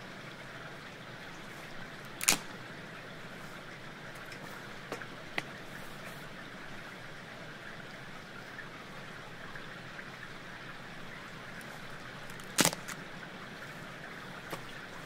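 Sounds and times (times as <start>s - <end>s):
running rainwater: 0.0s - 15.0s
kindling wood cracking: 2.2s - 2.5s, 12.3s - 13.0s.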